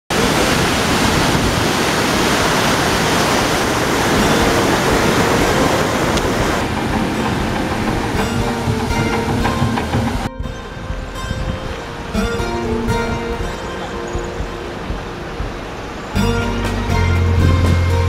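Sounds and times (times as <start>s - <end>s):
water rushing into lock chamber: 0.1s - 10.3s.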